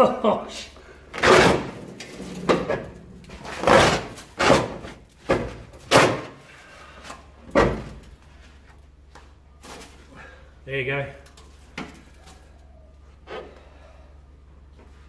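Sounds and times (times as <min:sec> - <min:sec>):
roof lining being ripped down: 0:01.1 - 0:06.4.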